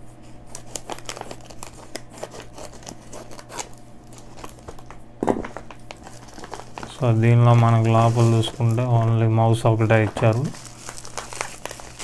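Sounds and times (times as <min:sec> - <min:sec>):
scissors snipping plastic: 0:00.5 - 0:04.9
plastic bag crinkling: 0:00.5 - 0:12.0.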